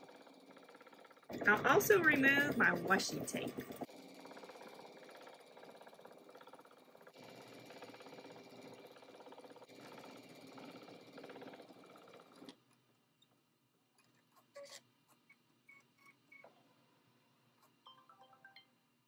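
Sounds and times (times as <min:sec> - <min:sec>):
embroidery machine needle clatter: 0:00.0 - 0:12.6.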